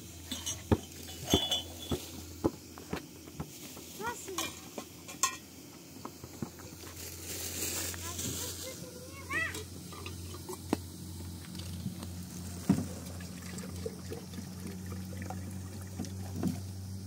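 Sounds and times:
utensil clinking against pot: 0:00.2 - 0:02.1, 0:04.4 - 0:05.5.

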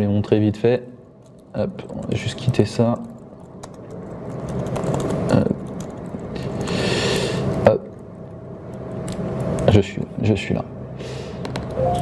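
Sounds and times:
laptop keyboard typing: 0:01.2 - 0:08.1
breathy hiss: 0:06.6 - 0:07.5.

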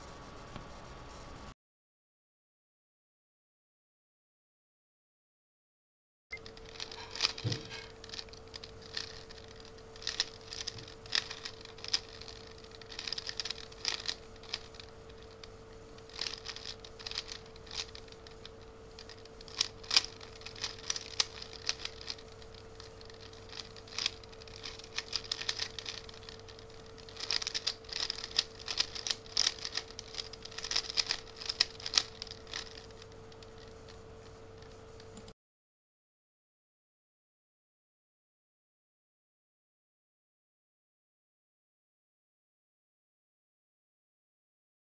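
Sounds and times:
plastic puzzle cube clicking: 0:06.5 - 0:33.7.

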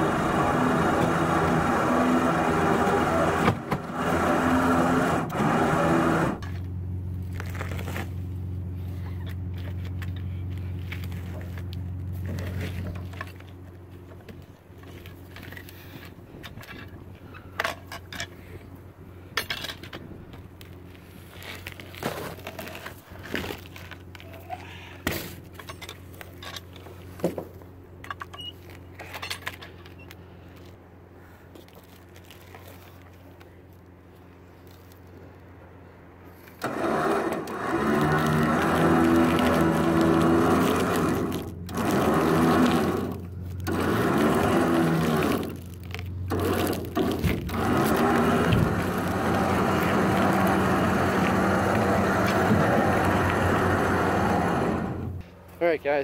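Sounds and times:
steady low hum: 0:00.0 - 0:55.9
winch running under load: 0:36.5 - 0:55.2.

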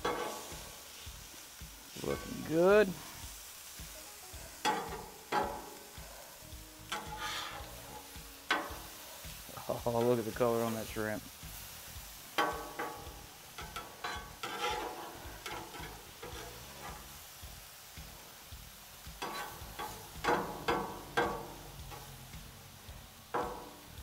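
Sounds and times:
metal spatula scraping griddle: 0:00.0 - 0:01.0, 0:04.6 - 0:10.9, 0:11.6 - 0:17.3, 0:19.2 - 0:22.2, 0:23.3 - 0:23.8
food sizzling: 0:00.0 - 0:24.0.

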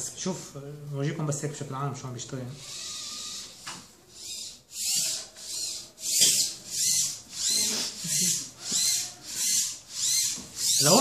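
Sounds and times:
robot servo motors whining: 0:02.6 - 0:11.0.

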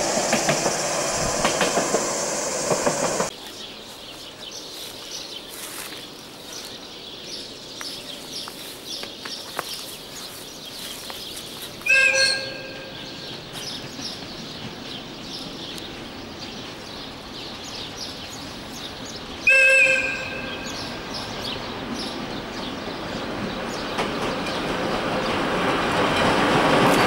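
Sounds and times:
small birds chirping: 0:00.6 - 0:26.2
train horn blast: 0:11.9 - 0:13.3, 0:19.5 - 0:20.8.

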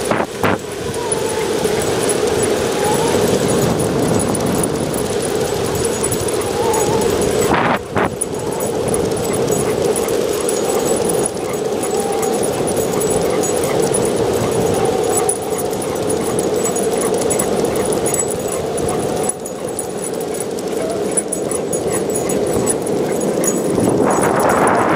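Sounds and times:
skateboard wheels rolling on asphalt: 0:00.0 - 0:11.0
dog whining: 0:00.1 - 0:24.9.

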